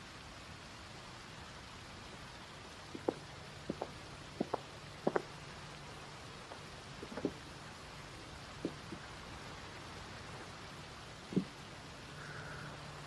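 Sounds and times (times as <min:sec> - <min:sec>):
faint steady hiss: 0:00.0 - 0:13.0
footsteps on hard path: 0:02.9 - 0:05.3.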